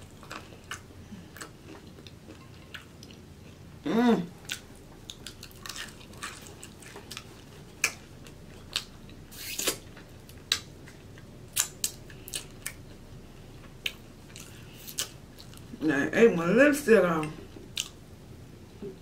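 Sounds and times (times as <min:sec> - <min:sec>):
wet chewing: 0:04.4 - 0:12.9
finger licking sucking sound: 0:09.3 - 0:09.8.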